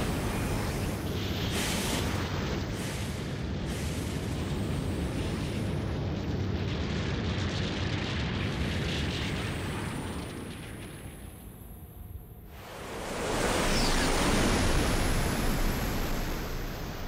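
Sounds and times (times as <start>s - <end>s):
jet engines roaring: 12.7s - 17.0s.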